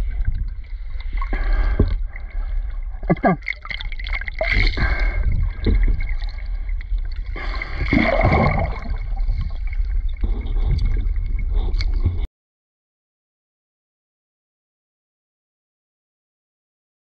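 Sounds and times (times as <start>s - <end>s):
low rumble: 0.0s - 12.3s
water gurgling and sloshing: 0.0s - 12.3s.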